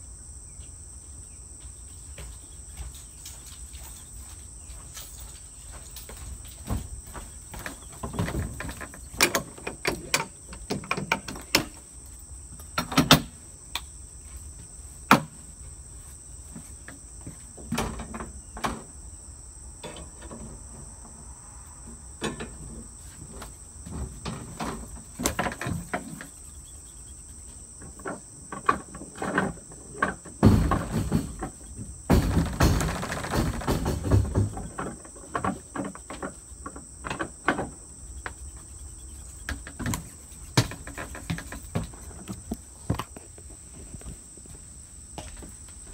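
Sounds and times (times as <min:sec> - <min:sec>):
insect chorus: 0:00.0 - 0:45.9
footsteps on wooden floor: 0:39.8 - 0:45.9.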